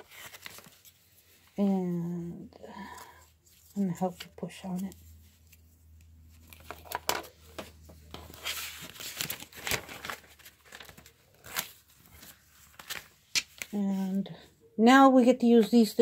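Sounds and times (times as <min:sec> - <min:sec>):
rustling: 0:00.0 - 0:01.6, 0:03.0 - 0:13.7.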